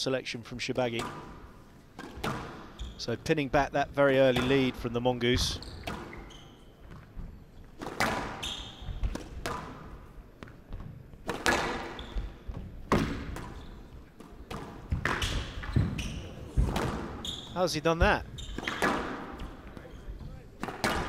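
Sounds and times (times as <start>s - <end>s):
squash ball hitting rackets and walls: 0.9s - 2.9s, 5.4s - 21.0s
shoes squeaking on wooden floor: 2.2s - 3.2s, 4.4s - 9.2s, 10.4s - 20.5s.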